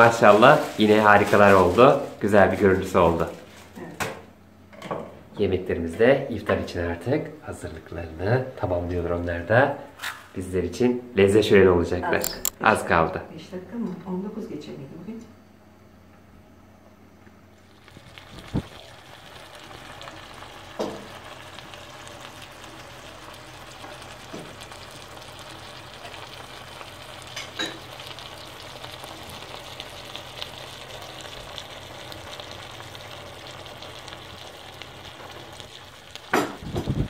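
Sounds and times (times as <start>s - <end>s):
meat sizzling in a pan: 0.0s - 3.8s, 17.5s - 37.0s.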